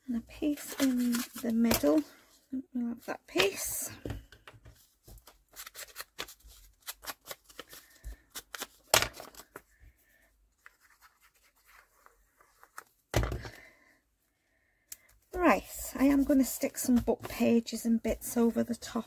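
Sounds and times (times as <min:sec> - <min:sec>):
paper rustling and crinkling: 0:00.4 - 0:02.2, 0:04.7 - 0:09.8, 0:10.6 - 0:13.2.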